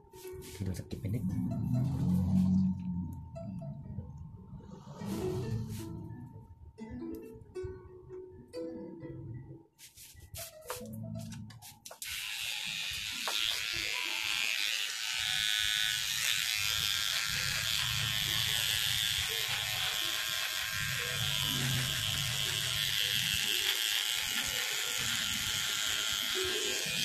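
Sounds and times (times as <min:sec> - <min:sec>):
electric beard trimmer buzzing: 0:12.0 - 0:27.0.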